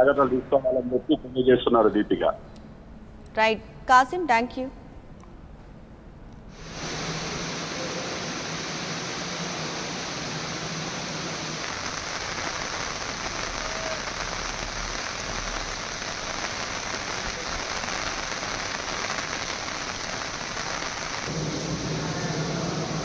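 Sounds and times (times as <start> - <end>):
rain falling: 6.6 - 23.0.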